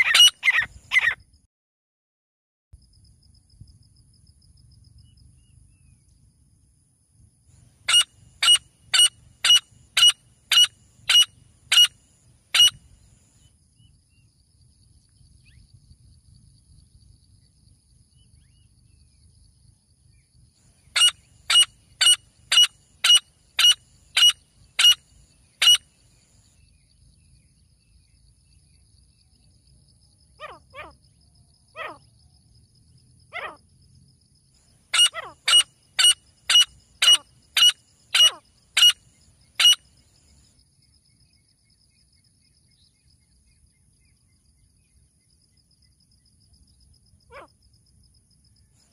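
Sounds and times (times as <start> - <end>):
francolins calling shrilly: 0.0 - 1.2, 7.9 - 13.0, 20.8 - 26.0, 31.8 - 32.0, 33.3 - 33.6, 34.9 - 40.0
fainter lower bird calls: 0.0 - 1.3, 7.8 - 14.3, 20.1 - 29.5, 30.2 - 31.0, 34.9 - 40.4.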